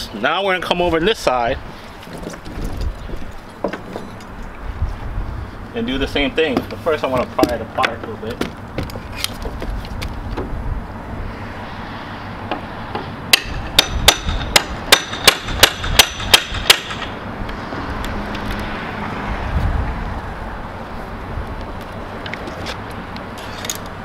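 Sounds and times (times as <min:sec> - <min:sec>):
hammer blows on metal: 0:12.5 - 0:17.2.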